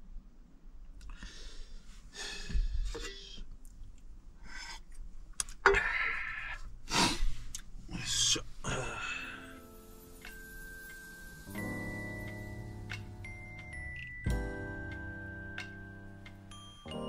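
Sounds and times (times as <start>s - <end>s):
person breathing and sighing: 1.1s - 3.5s, 5.7s - 9.7s.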